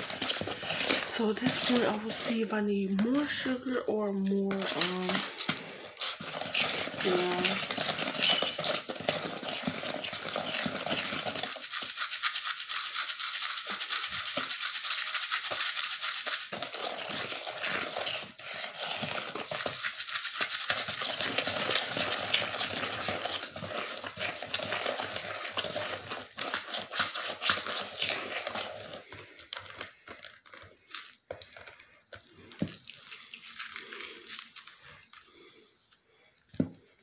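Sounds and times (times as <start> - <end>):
sugar grains scraping in a bowl: 0.0 - 29.4.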